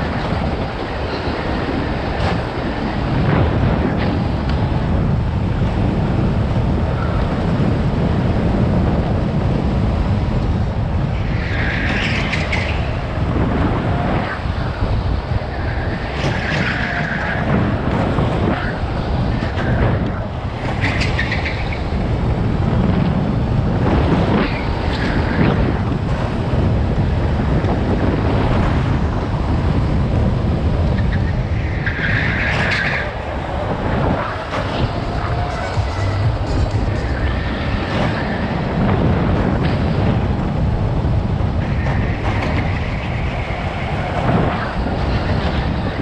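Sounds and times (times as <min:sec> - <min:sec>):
wind on microphone: 0:00.0 - 0:46.0
tyres squealing: 0:34.2 - 0:38.4.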